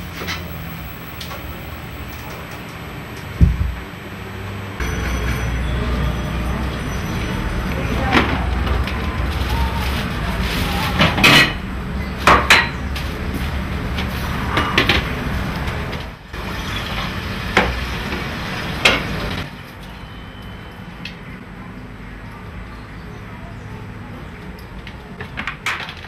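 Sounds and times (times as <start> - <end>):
dishes and utensils clinking: 10.9 - 11.6.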